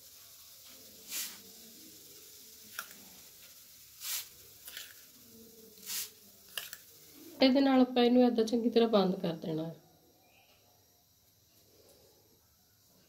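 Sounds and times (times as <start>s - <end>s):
seeds rustling into paper cone: 0.0s - 7.0s.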